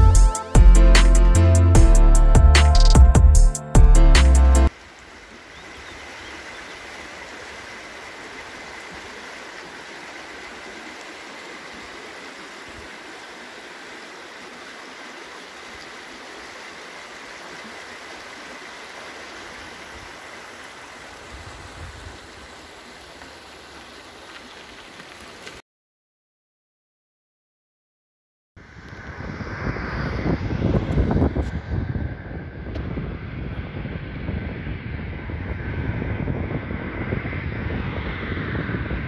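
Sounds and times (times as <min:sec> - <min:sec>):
brook babbling over stones: 0:04.7 - 0:25.6.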